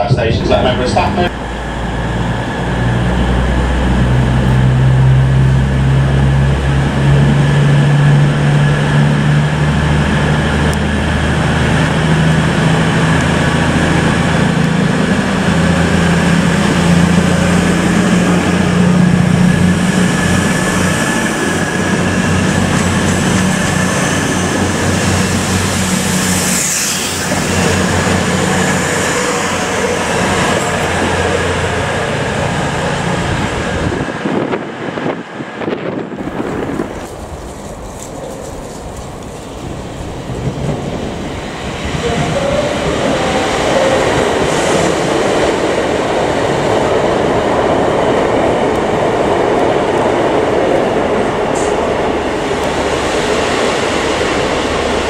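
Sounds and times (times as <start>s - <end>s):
train diesel engines running: 0.0s - 55.0s
high squeal: 23.1s - 30.2s.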